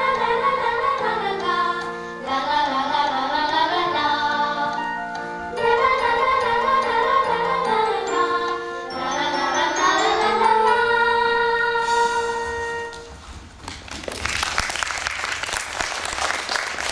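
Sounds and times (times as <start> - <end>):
children singing: 0.0 - 12.9
musical accompaniment: 0.0 - 13.6
audience applause: 13.8 - 16.9.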